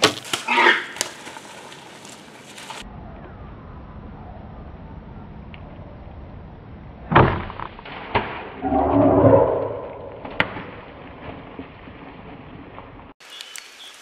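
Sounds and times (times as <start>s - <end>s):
animal scuffling through undergrowth: 0.0s - 2.9s.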